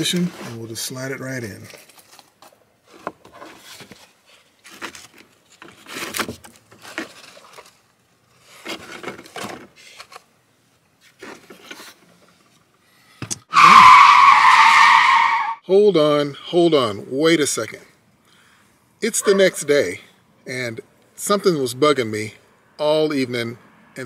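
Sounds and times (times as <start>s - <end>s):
loud screech: 13.5s - 15.6s.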